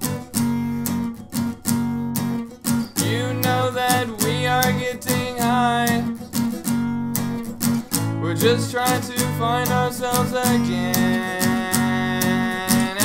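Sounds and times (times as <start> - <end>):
acoustic guitar strumming: 0.0 - 13.0
man singing: 3.0 - 6.2, 8.0 - 13.0.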